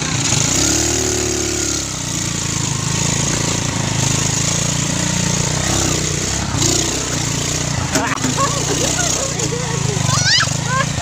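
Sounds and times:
road and wind noise: 0:00.0 - 0:11.0
vehicle engine running: 0:00.0 - 0:11.0.

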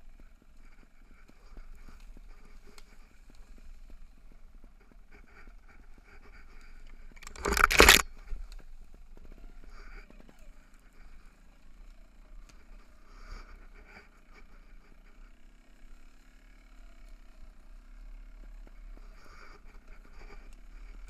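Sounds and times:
bike frame and chain rattling: 0:07.0 - 0:08.3.

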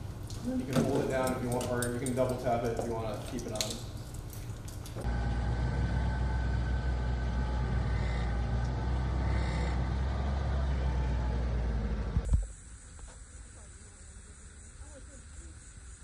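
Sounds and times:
vehicle engine humming: 0:00.0 - 0:12.5.

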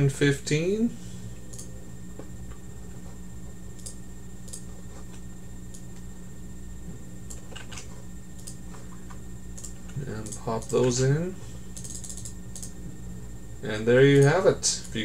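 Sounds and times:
steady low hum: 0:00.0 - 0:15.0
computer mouse clicks: 0:01.5 - 0:01.7, 0:03.8 - 0:06.0, 0:07.3 - 0:11.0, 0:11.7 - 0:12.8.

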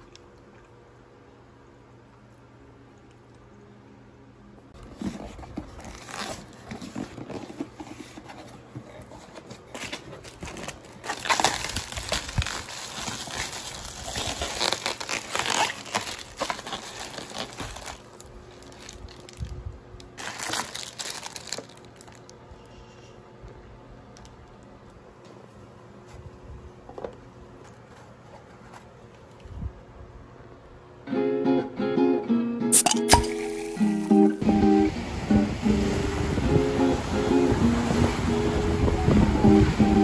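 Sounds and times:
plastic packing film crinkling: 0:04.8 - 0:22.4.

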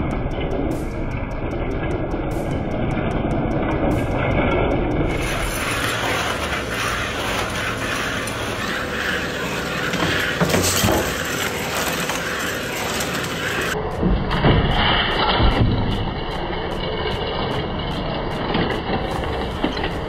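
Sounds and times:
treadmill belt running: 0:00.0 - 0:13.8
plastic beams clattering: 0:05.1 - 0:16.0.

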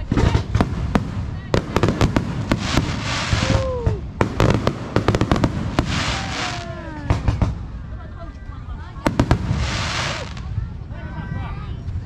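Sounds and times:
fireworks bangs and crackles: 0:00.0 - 0:08.0, 0:08.8 - 0:10.9
fireworks crackling hiss: 0:00.5 - 0:07.6, 0:09.0 - 0:10.9.

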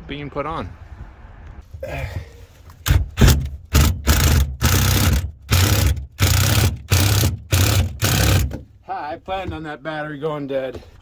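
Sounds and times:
screw gun driving screw: 0:02.8 - 0:08.6.

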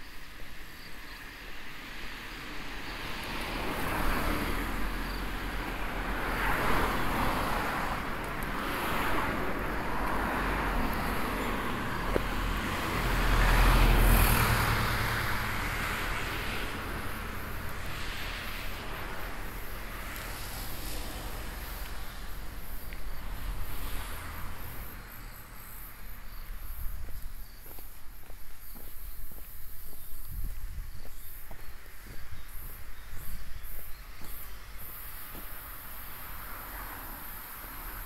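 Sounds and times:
outdoor background noise: 0:00.0 - 0:38.0.

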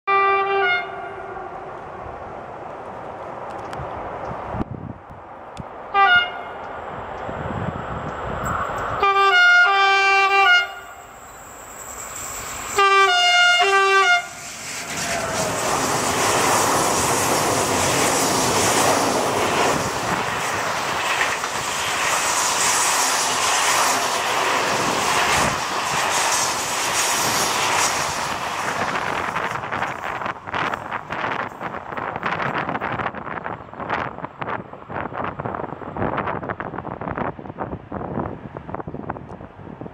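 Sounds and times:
locomotive horn: 0:00.1 - 0:01.6, 0:05.9 - 0:06.6, 0:09.0 - 0:11.1, 0:12.7 - 0:14.4
train wheels rumbling on rail: 0:00.3 - 0:39.9.

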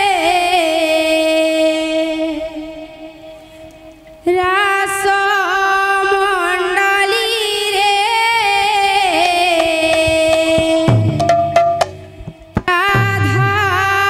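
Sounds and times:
woman singing into microphone: 0:00.0 - 0:03.4, 0:04.2 - 0:14.0
lower-pitched sound: 0:10.9 - 0:12.6.

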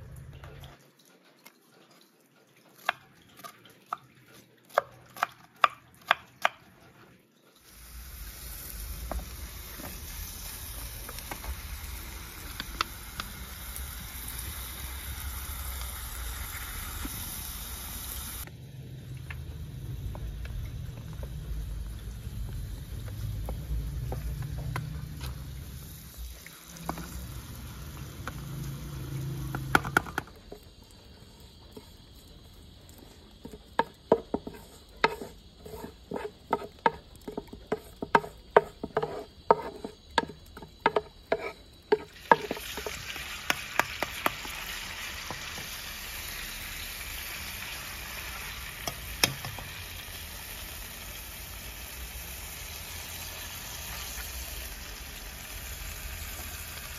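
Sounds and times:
potato slices sizzling in oil: 0:02.7 - 0:56.9
pot hissing on burner: 0:07.6 - 0:56.9
wooden spatula stirring: 0:20.1 - 0:25.7, 0:29.5 - 0:45.8
knife chopping on wooden board: 0:33.5 - 0:42.9.

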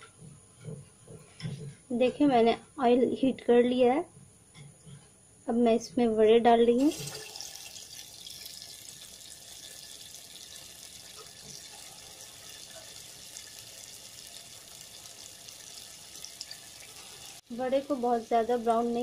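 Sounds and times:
batter deep-frying in oil: 0:06.8 - 0:19.0.

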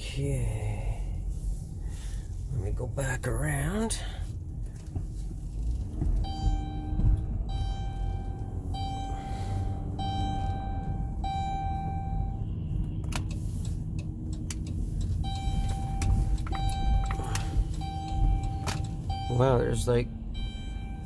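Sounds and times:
vehicle engine and road rumble: 0:00.0 - 0:21.0
repeating even-pitched tone: 0:06.2 - 0:12.5, 0:15.2 - 0:21.0.

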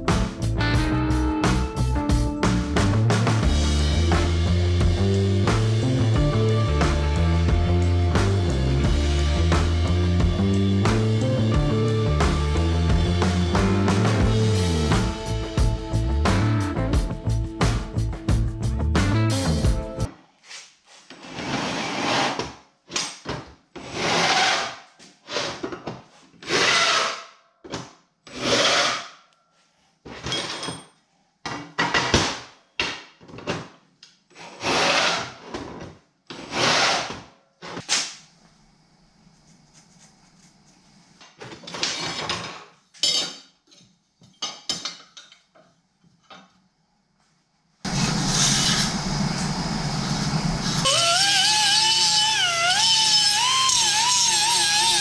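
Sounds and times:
die grinder whining: 0:47.9 - 0:55.0
power drill boring steel: 0:47.9 - 0:55.0.

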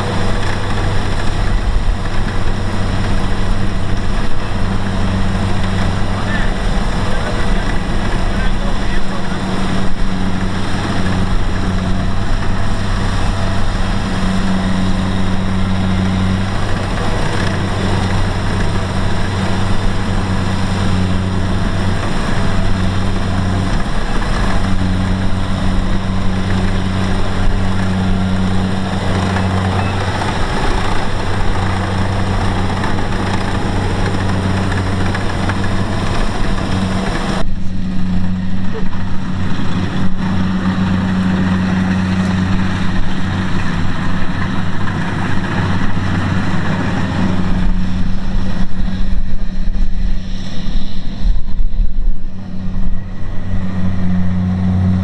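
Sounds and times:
mechanical clatter: 0:00.0 - 0:37.8
diesel engine hum: 0:00.0 - 0:55.0.

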